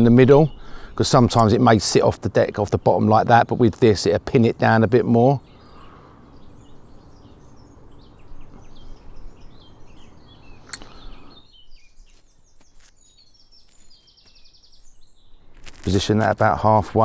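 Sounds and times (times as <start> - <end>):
background hiss: 0.0 - 17.0
songbirds chirping: 0.0 - 17.0
sharp click: 10.6 - 11.0.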